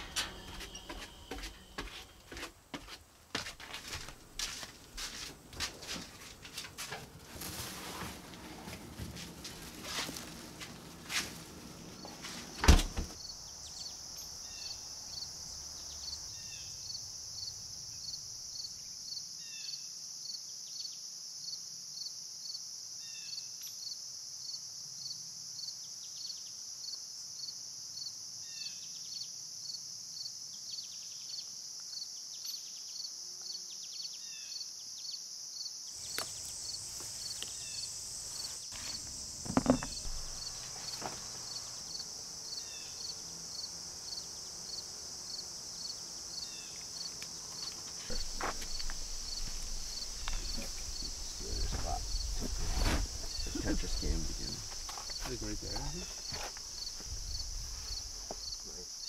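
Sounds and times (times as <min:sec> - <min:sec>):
pulsing insect chorus: 0:11.0 - 0:20.4, 0:35.6 - 0:59.0.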